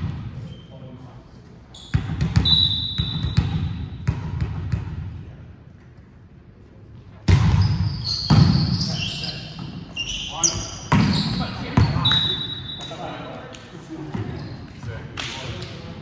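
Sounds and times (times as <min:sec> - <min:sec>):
sneakers squeaking on floor: 0:00.4 - 0:01.1, 0:01.7 - 0:04.0, 0:07.3 - 0:13.3, 0:14.1 - 0:15.0.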